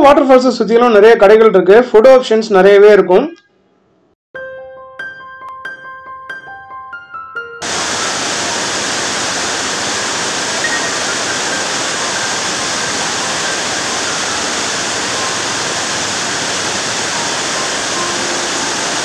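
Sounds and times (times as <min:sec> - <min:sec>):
waterfall rushing: 0:07.6 - 0:19.0.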